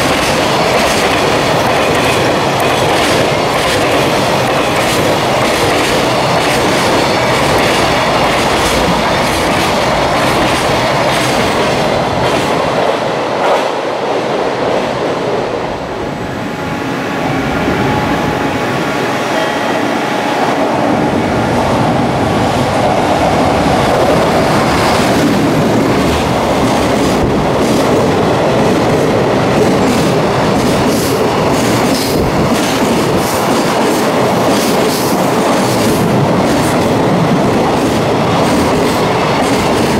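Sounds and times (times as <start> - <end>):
freight train wagons rumbling: 0.0 - 13.4, 15.2 - 39.9.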